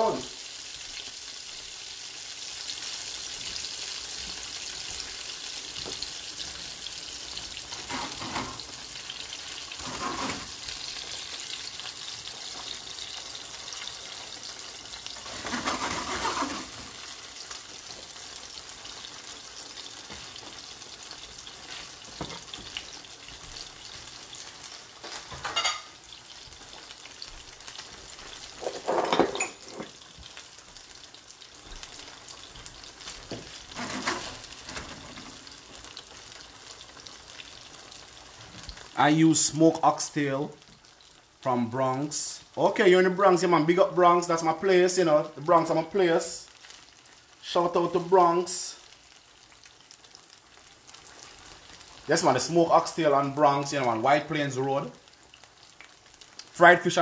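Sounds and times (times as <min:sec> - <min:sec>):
gnocchi sizzling in frying pan: 0:00.0 - 0:57.0
spatula stirring in pan: 0:07.4 - 0:08.9, 0:09.6 - 0:10.9, 0:33.3 - 0:35.6.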